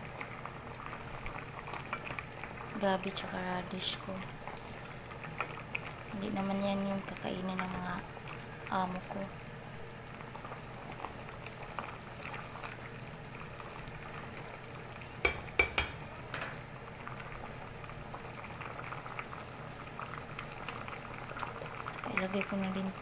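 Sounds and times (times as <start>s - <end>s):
broth boiling in a pot: 0.0s - 23.0s
low steady hum: 0.0s - 23.0s
ladle knocking against pot: 15.2s - 16.6s.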